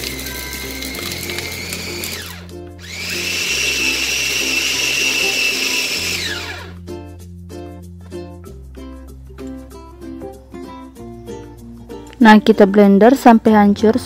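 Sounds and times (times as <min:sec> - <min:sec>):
electric chopper motor whine: 0:00.1 - 0:06.8.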